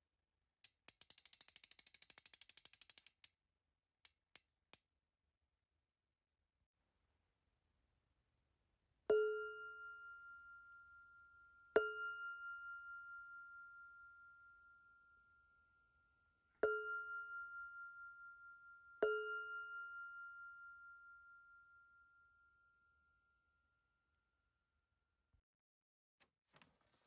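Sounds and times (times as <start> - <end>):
struck metal bell ringing: 9.1 - 15.0, 16.6 - 22.1.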